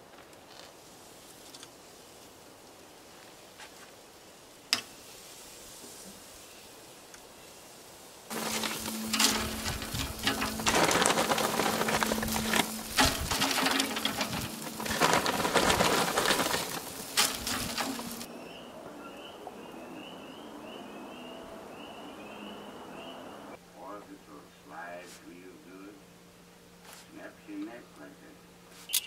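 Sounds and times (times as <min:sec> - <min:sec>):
meat sizzling on a grill: 0:11.8 - 0:14.9
bird chirping: 0:18.1 - 0:23.6.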